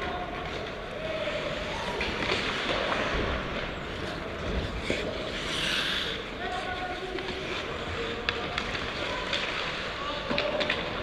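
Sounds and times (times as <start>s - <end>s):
ice skates scraping on ice: 1.2s - 10.0s.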